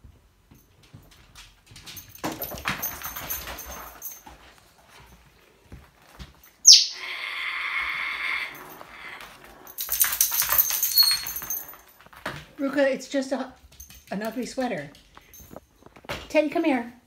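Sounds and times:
parrot screeching: 6.6 - 9.2
parrot growling: 6.9 - 9.8.

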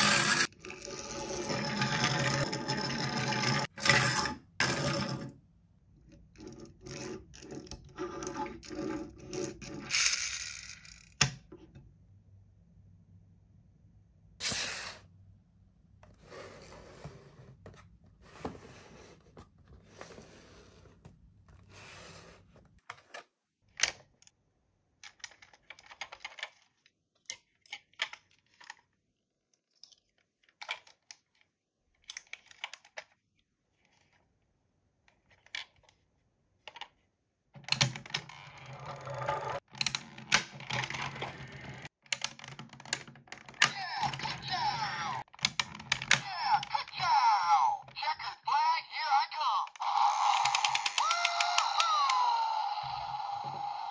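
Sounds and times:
toys clicking and tapping: 49.0 - 53.9.

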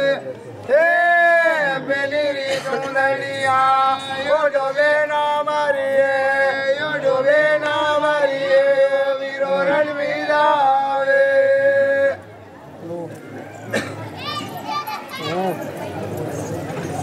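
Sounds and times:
men chanting: 0.0 - 12.2.

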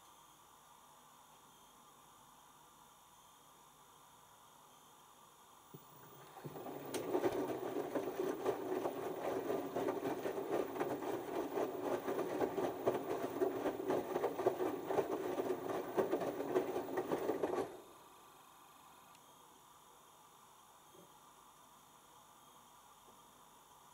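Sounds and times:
washing machine drum churning: 5.8 - 17.9.

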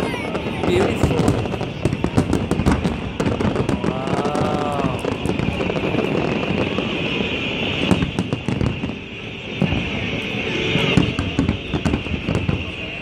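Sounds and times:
fireworks bangs and crackles: 0.0 - 13.0.

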